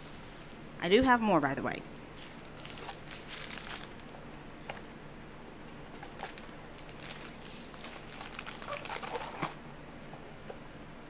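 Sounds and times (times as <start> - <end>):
plastic packaging crinkling: 2.2 - 4.9, 5.9 - 9.6.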